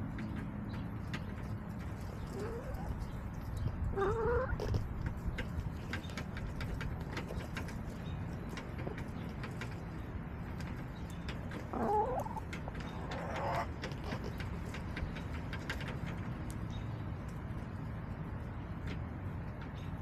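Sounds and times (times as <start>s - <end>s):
hens calling: 2.0s - 4.9s, 11.0s - 14.4s.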